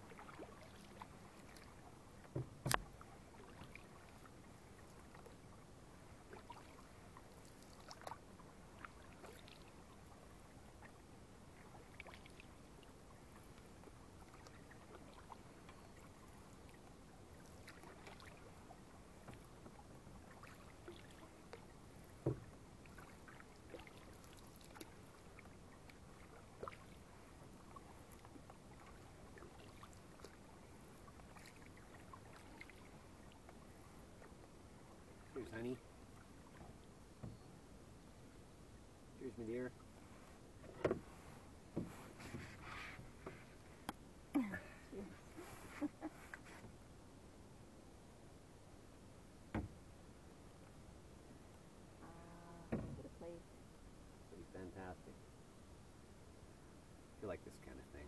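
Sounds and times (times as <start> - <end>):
water drips and splashes: 0.0 - 5.4, 6.3 - 10.2, 11.6 - 33.6
canoe paddle strokes: 0.0 - 37.4, 39.7 - 46.8.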